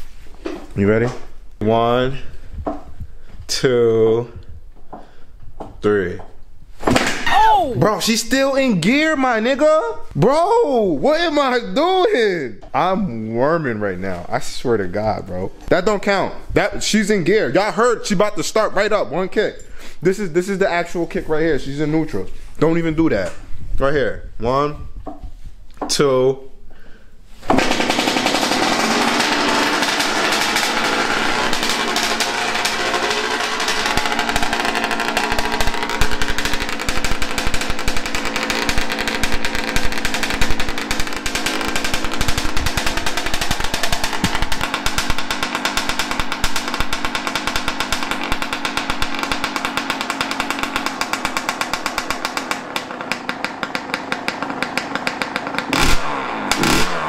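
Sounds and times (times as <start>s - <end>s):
dirt bike engine revving: 27.5s - 57.0s.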